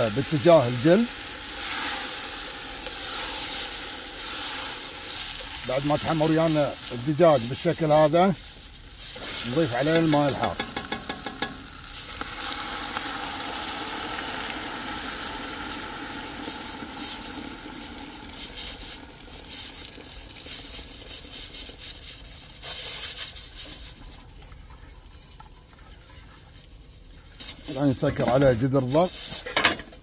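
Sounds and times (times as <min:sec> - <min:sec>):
water pouring and splashing: 0:00.0 - 0:25.5
chicken sizzling in a pot: 0:00.0 - 0:30.0
spoon scraping and stirring: 0:02.8 - 0:12.1.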